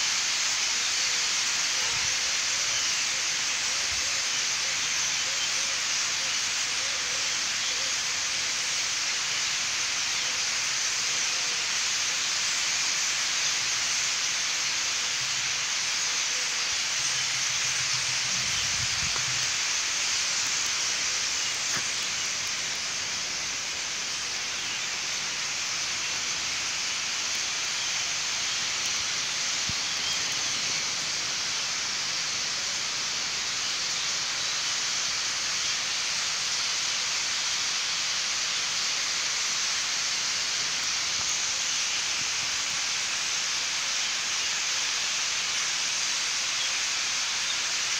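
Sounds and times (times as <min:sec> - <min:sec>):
starlings chattering: 0:15.2 - 0:32.9.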